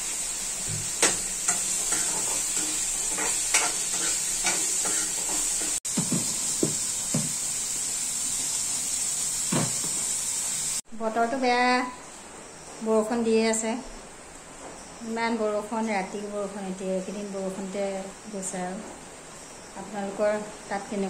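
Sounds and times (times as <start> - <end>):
potatoes sizzling in a wok: 0.0 - 11.9
metal spoon scraping a pan: 0.9 - 5.8.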